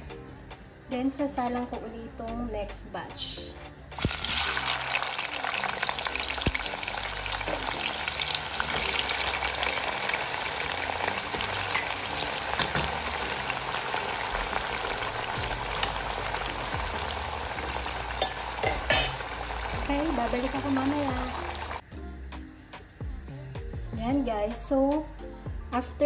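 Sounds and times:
oil crackling and sizzling: 0:03.9 - 0:21.8.

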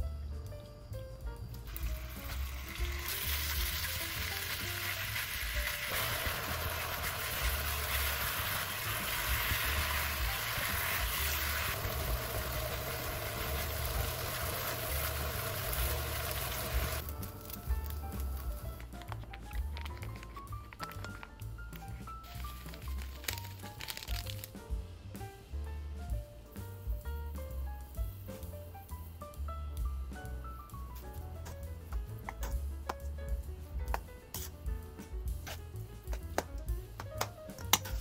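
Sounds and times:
meat sizzling in a wok: 0:01.7 - 0:18.8, 0:22.2 - 0:24.6.

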